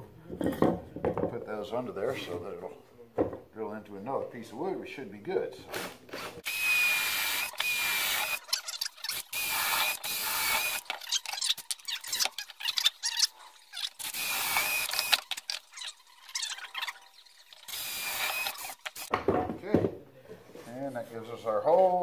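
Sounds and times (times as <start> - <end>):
cordless drill whining: 6.1 - 11.0, 14.0 - 15.2, 17.7 - 19.1.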